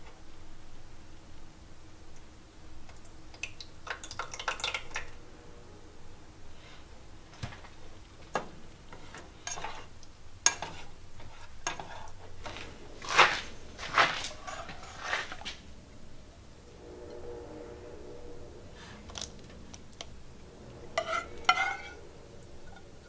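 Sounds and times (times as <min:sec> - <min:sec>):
plastic spatula scraping a saucepan: 0:10.5 - 0:12.1, 0:21.0 - 0:22.0.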